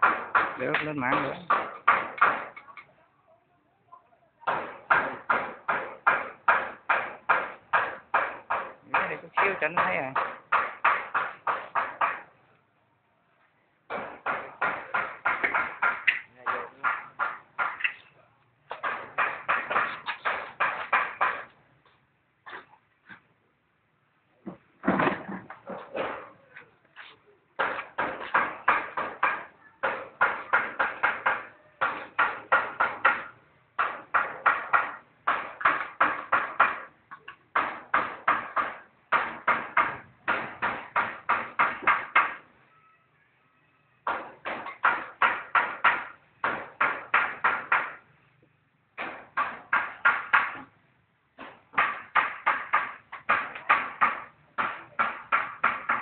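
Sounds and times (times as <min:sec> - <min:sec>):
rapid sharp knocks: 0:00.0 - 0:02.7, 0:04.4 - 0:12.3, 0:13.9 - 0:18.0, 0:18.7 - 0:21.5, 0:27.6 - 0:36.9, 0:37.5 - 0:42.5, 0:44.0 - 0:48.0, 0:49.0 - 0:50.7, 0:51.4 - 0:56.0.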